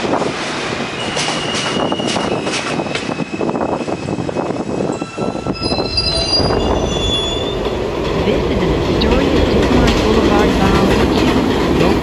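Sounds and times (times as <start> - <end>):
train rumble and rattle: 0.0 - 12.0
train wheels squealing: 0.9 - 7.8.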